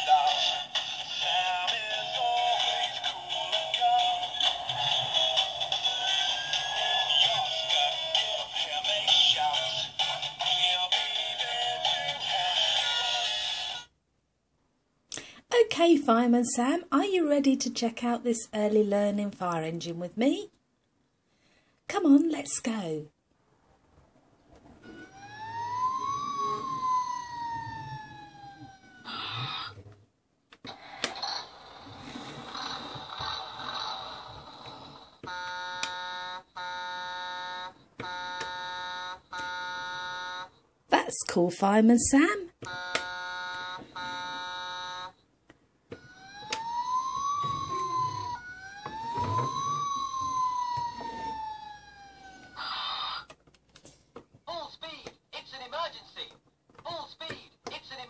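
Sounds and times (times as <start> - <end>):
toy electronic siren wail: 0.0 - 13.9, 24.8 - 29.8, 30.7 - 40.5, 42.7 - 45.2, 45.9 - 53.4
electronic high tone effect: 24.9 - 28.0, 46.1 - 51.6.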